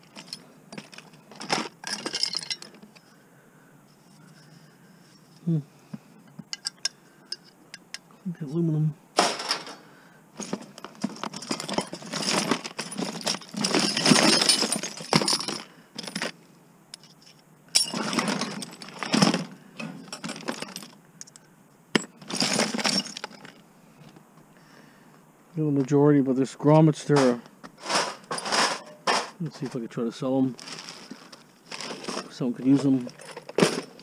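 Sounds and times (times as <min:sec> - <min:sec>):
metal scrap clinking and rattling: 0:00.0 - 0:03.0, 0:09.2 - 0:09.8, 0:10.4 - 0:23.6, 0:27.0 - 0:29.4, 0:30.6 - 0:34.0.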